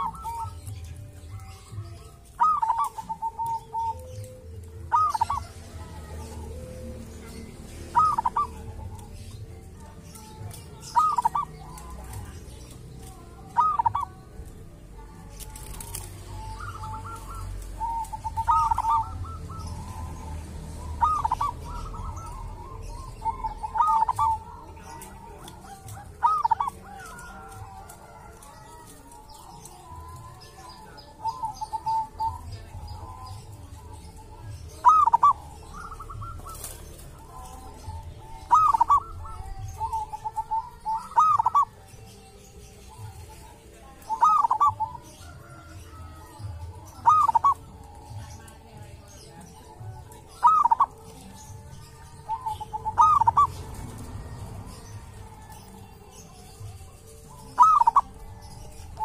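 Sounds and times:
dove cooing: 0.0s - 59.0s.

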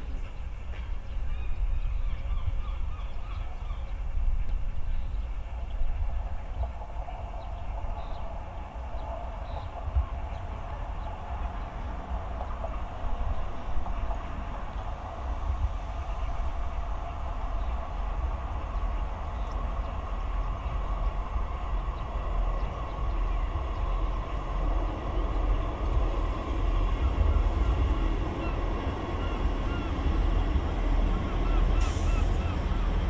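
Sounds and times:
diesel train engine rumbling: 0.0s - 33.0s.

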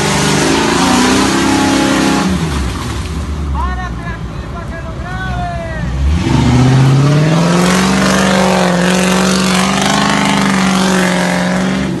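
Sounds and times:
engine revving: 0.0s - 2.8s, 5.8s - 12.0s.

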